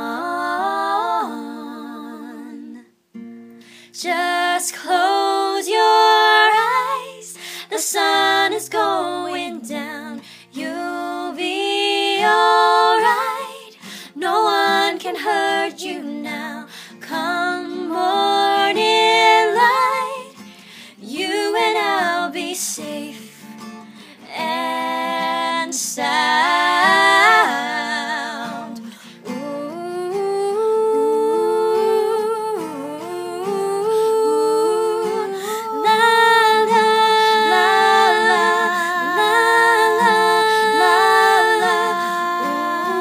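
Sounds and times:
women singing a slow melody: 0.0s - 43.0s
plucked acoustic guitar: 3.1s - 3.8s, 7.9s - 43.0s.

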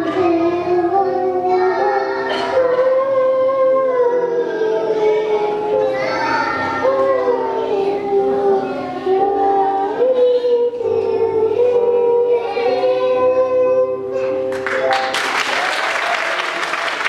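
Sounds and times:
children singing with accompaniment: 0.0s - 15.2s
audience applause: 14.5s - 17.0s.

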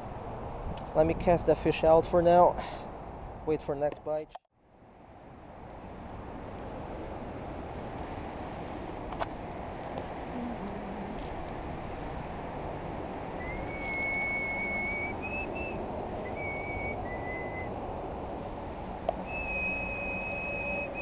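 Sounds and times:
person whistling a slow tune: 13.4s - 17.7s, 19.2s - 21.0s.

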